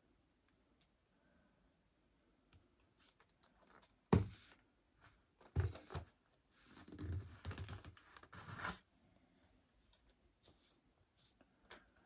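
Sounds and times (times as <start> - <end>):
cardboard box knocking on desk: 4.1 - 4.4.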